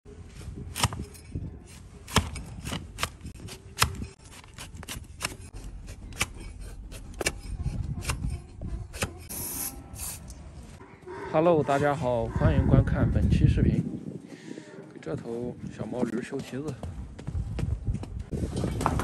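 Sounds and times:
blade paring hoof: 0.6s - 9.3s.

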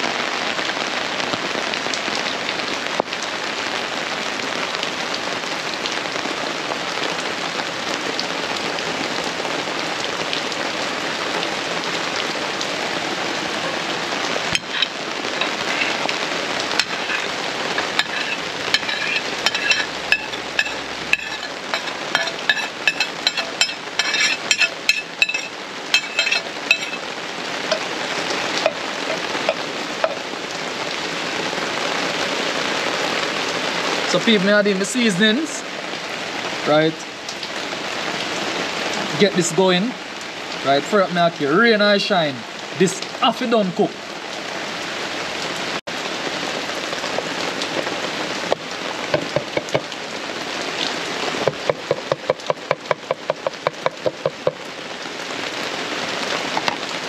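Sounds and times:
rain falling: 0.0s - 57.0s
spoon clinking on plate and pot: 14.6s - 15.9s, 16.8s - 27.0s.

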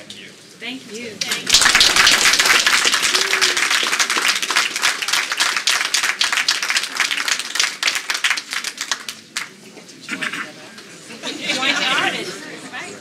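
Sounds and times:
crowd applauding: 1.2s - 11.0s.

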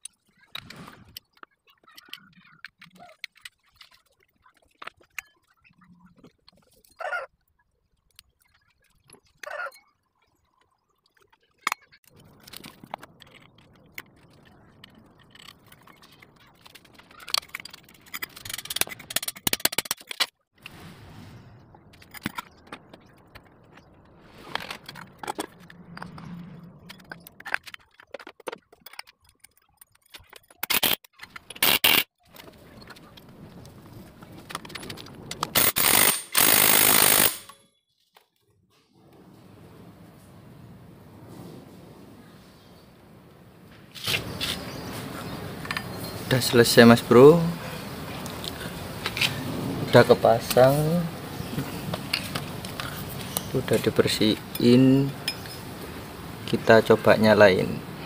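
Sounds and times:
metallic clicks and knocks: 11.7s - 20.3s
metal parts clattering: 14.8s - 20.3s.

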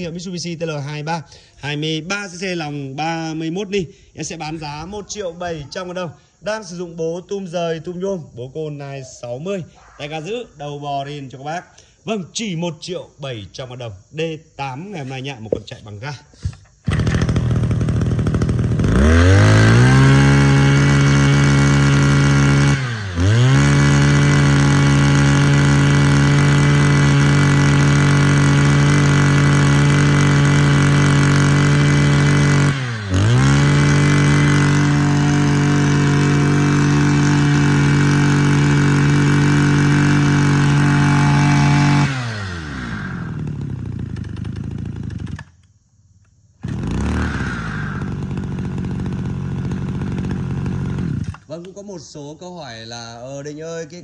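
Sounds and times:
brush cutter engine revving: 16.4s - 45.6s, 46.6s - 51.7s.

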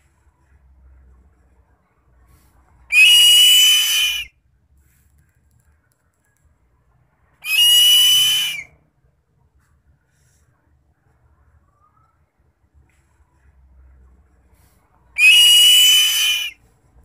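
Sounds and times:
bird of prey screaming: 2.9s - 4.3s, 7.4s - 8.7s, 15.2s - 16.6s.

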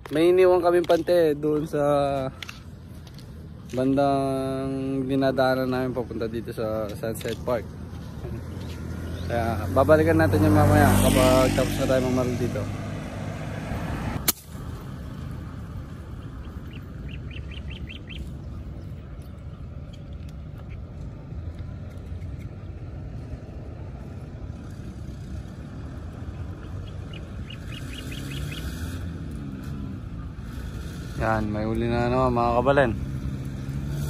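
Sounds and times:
low outdoor rumble: 0.0s - 34.0s
bird calling high notes: 16.2s - 18.4s.

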